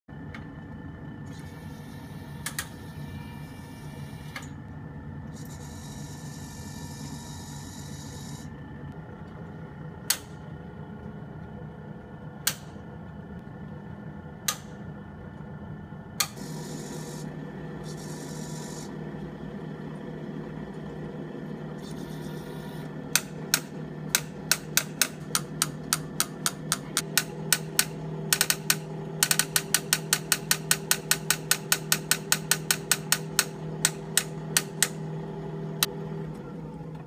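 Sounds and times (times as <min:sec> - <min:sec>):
motor hum: 0:00.1 - 0:37.0
switch clicks: 0:10.1 - 0:10.4, 0:23.1 - 0:35.0.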